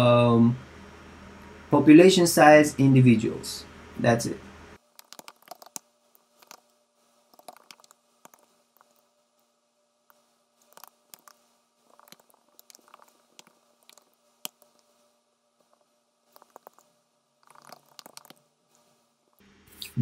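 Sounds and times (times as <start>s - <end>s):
faint steady hum: 0.0s - 20.0s
keyboard typing: 4.9s - 5.8s, 6.4s - 6.6s, 7.3s - 9.0s, 10.7s - 14.8s, 16.4s - 16.8s, 17.4s - 18.4s.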